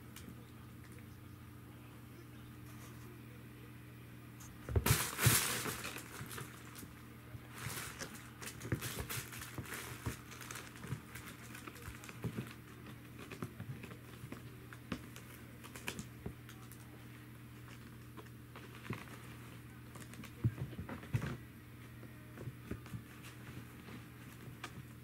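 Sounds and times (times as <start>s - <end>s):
kitten batting felt tunnel: 4.5s - 16.8s
light taps and scratches: 17.6s - 25.0s.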